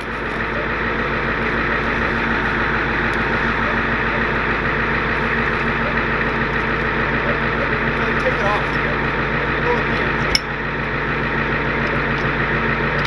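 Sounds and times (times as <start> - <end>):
truck engine running: 0.0 - 13.0.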